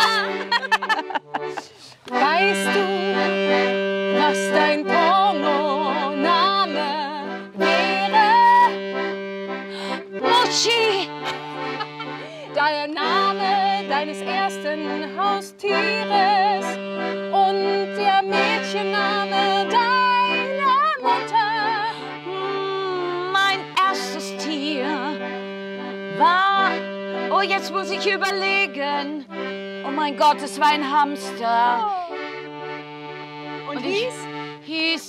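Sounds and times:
woman singing with vibrato: 0:00.0 - 0:00.8, 0:01.5 - 0:08.8, 0:10.2 - 0:25.2, 0:26.1 - 0:29.2, 0:29.8 - 0:32.2, 0:34.0 - 0:35.0
accordion playing chords: 0:00.0 - 0:35.0.

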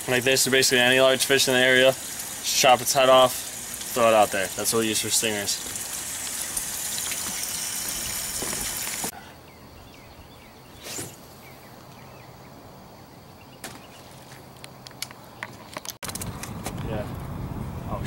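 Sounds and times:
steady hiss: 0:00.0 - 0:09.1
outdoor background: 0:00.0 - 0:18.0
fishing rod cast whoosh: 0:10.8 - 0:11.2.

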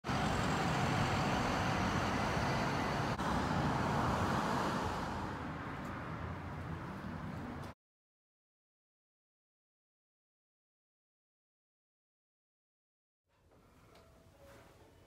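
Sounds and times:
passing vehicle: 0:00.0 - 0:07.8.

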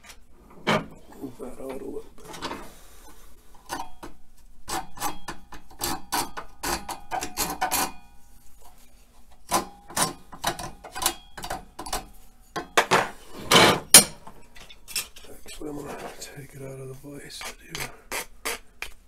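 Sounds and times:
hand file rasping on wood: 0:17.4 - 0:19.0.

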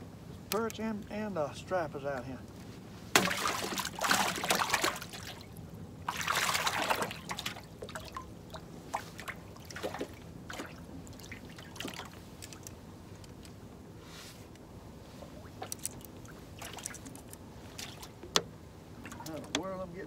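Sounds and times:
water lapping against boat hull: 0:03.1 - 0:13.4, 0:14.5 - 0:19.8
water splashing rush: 0:03.2 - 0:12.2.

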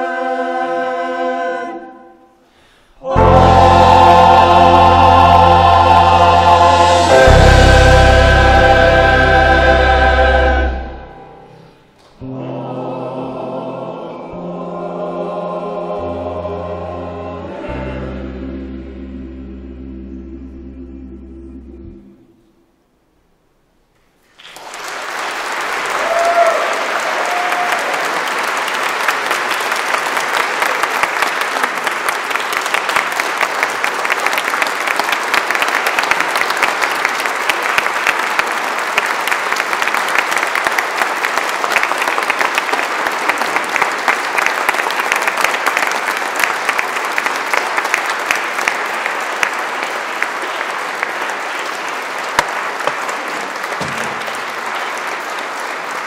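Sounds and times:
congregation applauding: 0:24.2 - 0:56.0.

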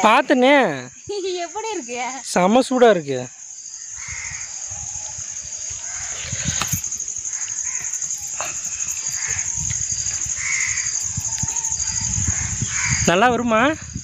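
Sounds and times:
high insect drone: 0:00.0 - 0:14.0
crows cawing: 0:07.3 - 0:13.1.

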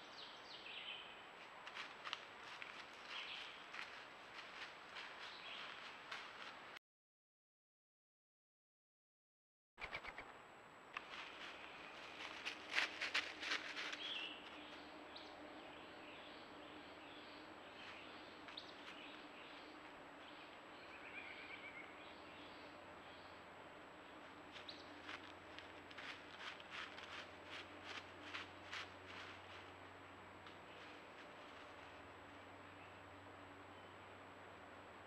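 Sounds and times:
faint outdoor ambience: 0:00.0 - 0:06.8, 0:09.8 - 0:35.0
bird chirps: 0:09.8 - 0:10.3, 0:20.3 - 0:23.4.

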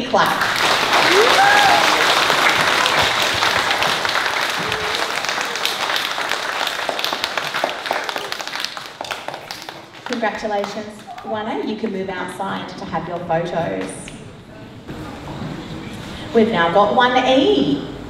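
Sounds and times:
audience applauding: 0:00.3 - 0:11.3.

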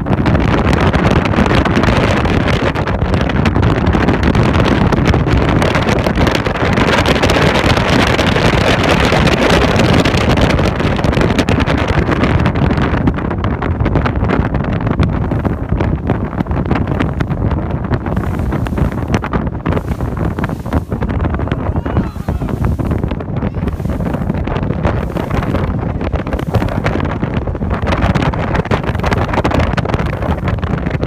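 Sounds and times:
wind buffeting microphone: 0:00.0 - 0:31.0
boat engine rushing: 0:15.0 - 0:31.0
water rushing: 0:15.5 - 0:30.5.

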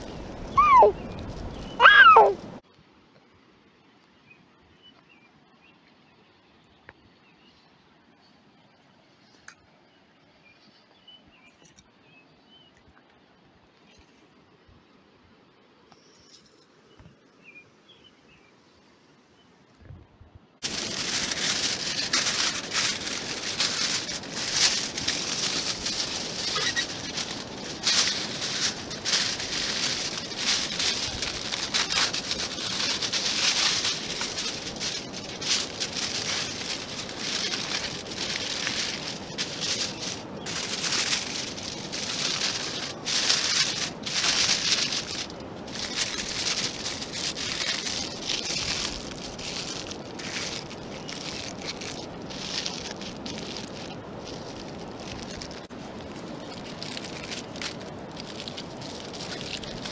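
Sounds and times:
aluminium foil crinkling: 0:00.0 - 0:02.6, 0:20.6 - 0:59.9.

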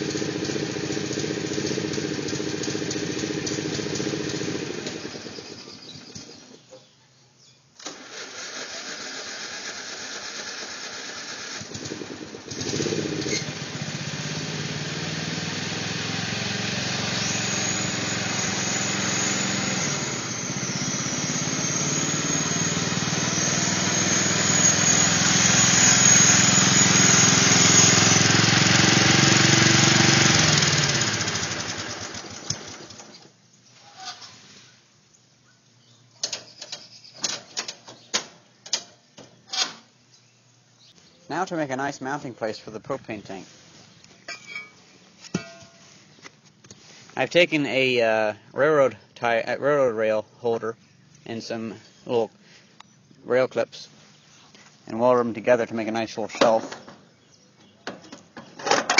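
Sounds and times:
riding mower engine running: 0:00.0 - 0:06.7, 0:07.8 - 0:33.4.

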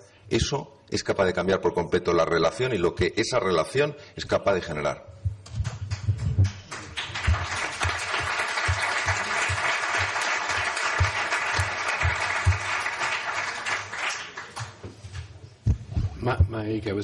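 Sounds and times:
audience applauding: 0:05.7 - 0:14.8.

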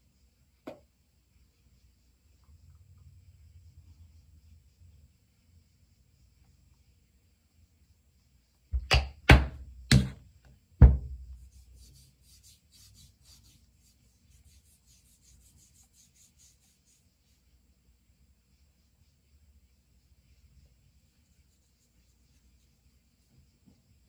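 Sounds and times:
hand rubbing lotion on skin: 0:11.4 - 0:17.6, 0:18.4 - 0:24.0.

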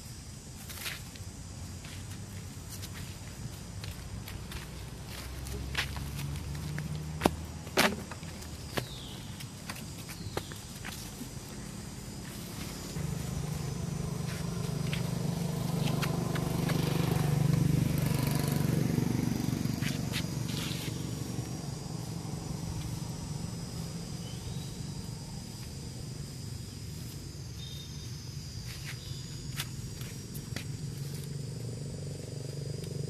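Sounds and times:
motorbike engine running: 0:11.6 - 0:26.0.

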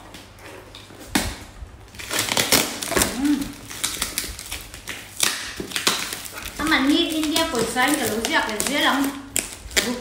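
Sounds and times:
knife cutting plastic wrap and tape: 0:00.0 - 0:10.0.

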